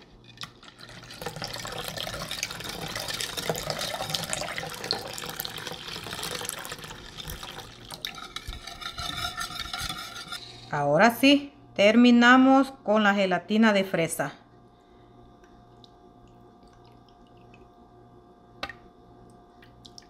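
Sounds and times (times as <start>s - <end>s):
water pouring into a bowl: 0.4s - 9.2s, 15.8s - 17.8s.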